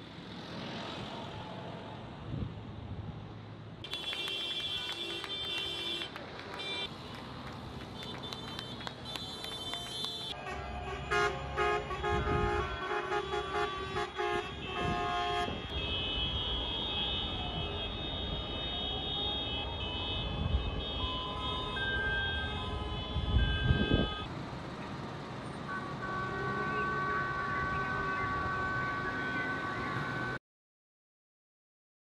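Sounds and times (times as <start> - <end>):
vehicle horns honking: 3.8 - 7.2, 7.9 - 24.3, 25.7 - 30.4
long wailing horn tone: 9.3 - 24.3, 25.7 - 30.4.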